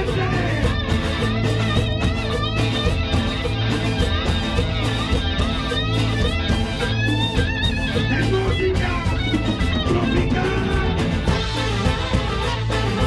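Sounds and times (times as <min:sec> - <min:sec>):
bass and drums: 0:00.0 - 0:13.0
strummed acoustic guitar: 0:07.9 - 0:13.0.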